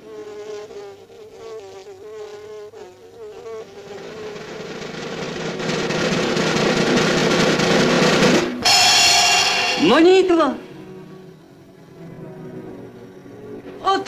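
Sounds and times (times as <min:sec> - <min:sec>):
noisy drumroll-like roll: 0:04.0 - 0:10.7
buzzing wavering tone: 0:08.6 - 0:13.8.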